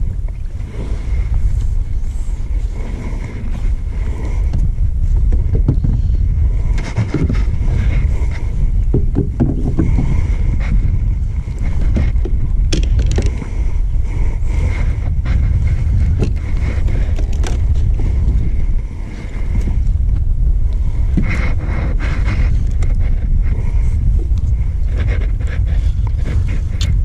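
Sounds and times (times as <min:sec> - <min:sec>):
wind buffeting microphone: 0:00.0 - 0:27.0
gear clicks and knocks: 0:03.3 - 0:13.8, 0:14.8 - 0:18.8.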